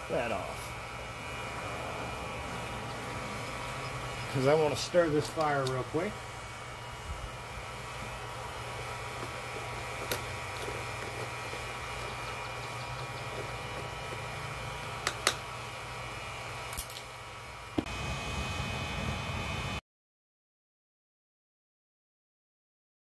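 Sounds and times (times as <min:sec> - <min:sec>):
hair dryer whirring: 0:00.0 - 0:19.8
steel rod clicking on coals: 0:05.1 - 0:05.8, 0:09.2 - 0:14.3, 0:15.0 - 0:15.5.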